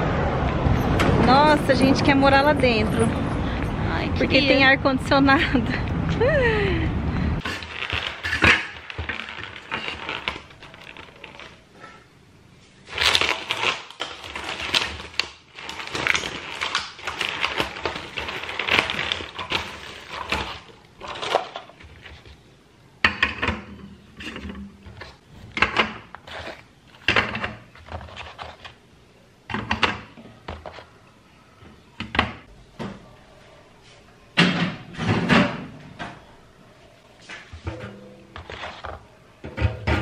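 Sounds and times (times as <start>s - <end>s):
plastic film crinkling: 7.4s - 11.6s, 12.8s - 22.4s.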